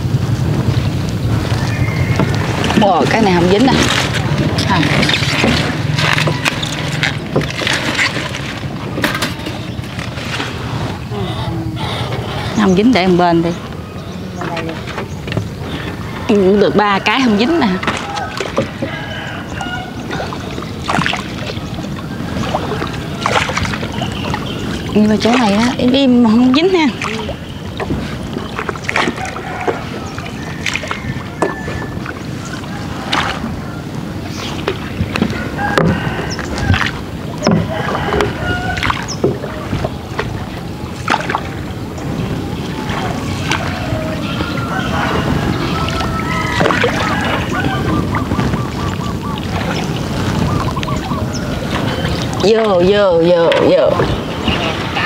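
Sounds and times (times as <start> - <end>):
water sloshing along boat hull: 0.0 - 55.0
wooden oar strokes: 14.4 - 55.0.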